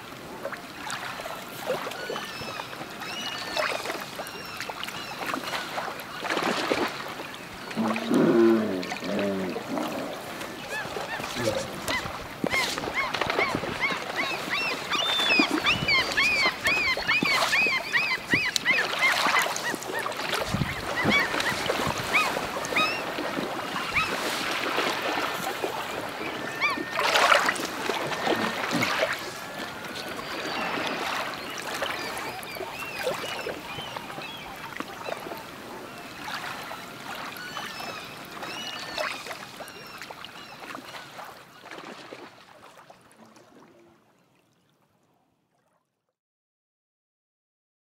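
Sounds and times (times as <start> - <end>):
birds chirping: 7.5 - 23.2.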